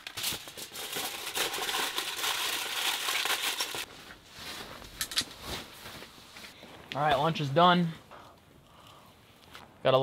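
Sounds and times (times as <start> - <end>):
aluminium foil crinkling: 0.0 - 3.9.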